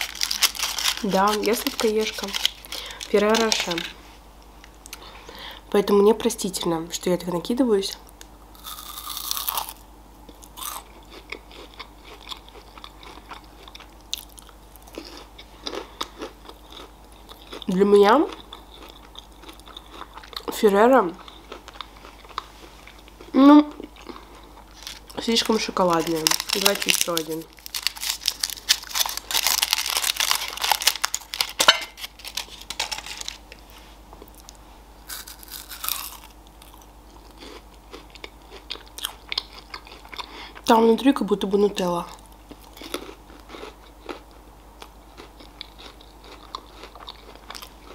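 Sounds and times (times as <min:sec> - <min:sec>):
chocolate crunching and chewing: 0:00.0 - 0:03.9, 0:08.6 - 0:33.5, 0:34.2 - 0:40.7, 0:42.2 - 0:47.9
foil wrapper crinkling: 0:00.0 - 0:03.9, 0:24.8 - 0:33.5.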